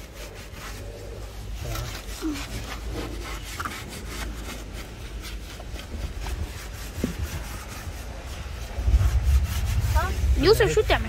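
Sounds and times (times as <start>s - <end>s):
sponge scrubbing car surface: 0.0s - 11.0s
low rumble: 0.6s - 11.0s.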